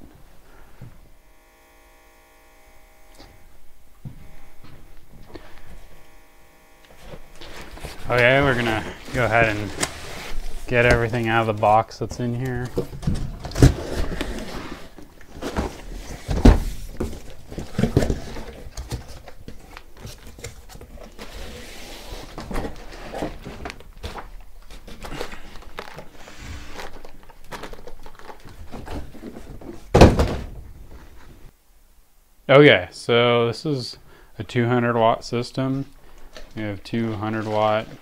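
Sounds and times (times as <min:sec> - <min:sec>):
cardboard rustling and scraping: 0:06.9 - 0:31.5
cardboard box thunks: 0:15.4 - 0:19.2, 0:28.6 - 0:30.8.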